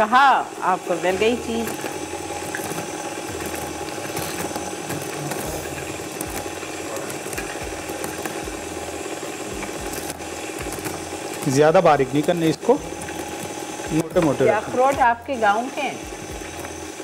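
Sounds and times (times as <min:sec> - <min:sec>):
stand mixer rattling and grinding: 0:00.0 - 0:17.0.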